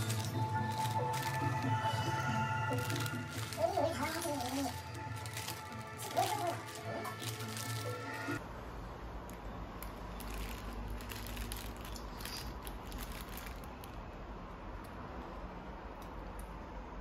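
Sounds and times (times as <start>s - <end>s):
paper wrapper rustling and crinkling: 0.0s - 8.4s, 10.0s - 14.0s.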